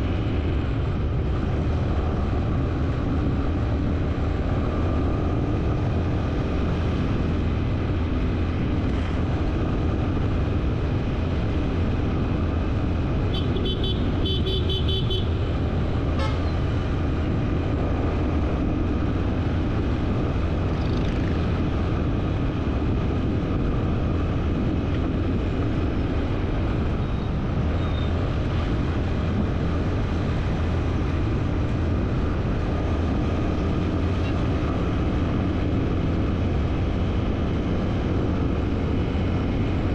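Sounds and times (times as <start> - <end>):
road and vehicle noise: 0.0 - 39.9
vehicle horn short beeps: 13.4 - 15.3.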